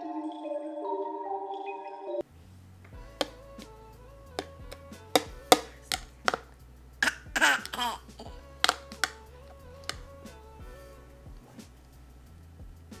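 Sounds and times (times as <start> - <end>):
soft background music: 0.0 - 13.0
spoon clicking on plastic bowl: 4.4 - 6.5, 8.6 - 9.2, 9.8 - 10.1
toddler laughing: 7.0 - 8.4.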